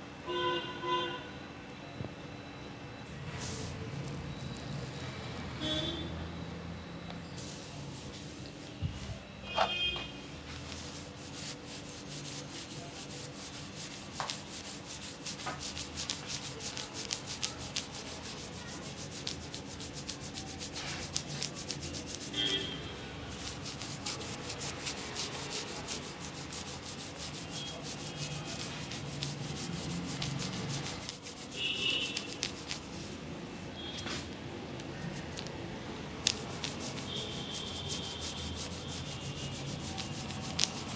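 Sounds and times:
scalp massager rubbing hair: 10.6 - 33.2, 36.2 - 40.9.

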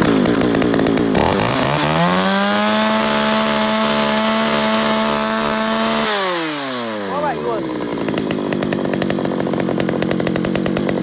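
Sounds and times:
chainsaw revving: 0.0 - 11.0.

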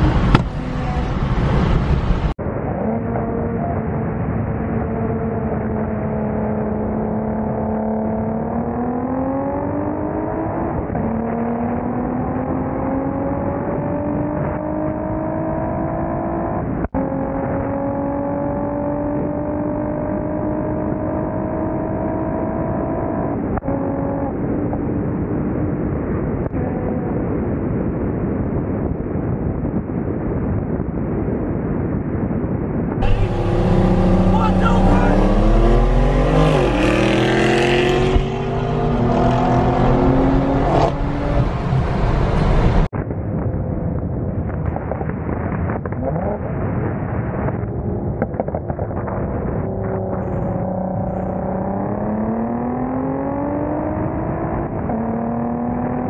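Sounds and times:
car engine accelerating: 0.0 - 25.8, 33.0 - 42.9, 48.1 - 56.0.

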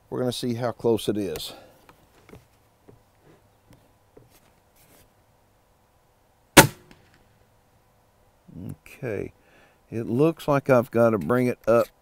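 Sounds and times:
air rifle shot: 6.6 - 7.2.

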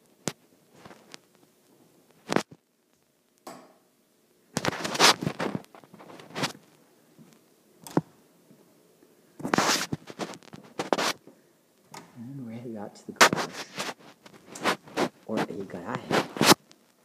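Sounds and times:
handling noise on recorder: 0.0 - 3.1, 4.5 - 8.1, 9.4 - 12.2, 13.1 - 17.0.

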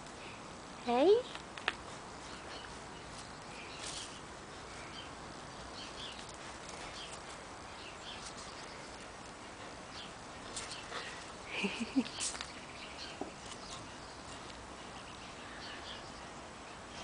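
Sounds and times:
steady background hiss: 0.0 - 17.0
puppy scuffing on gravel: 2.3 - 4.2.

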